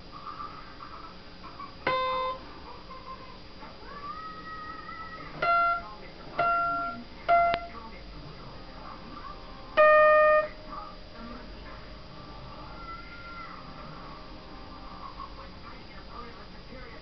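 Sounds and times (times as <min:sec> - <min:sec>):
guitar notes plucked: 0:01.9 - 0:02.4, 0:05.4 - 0:07.7, 0:09.8 - 0:10.6.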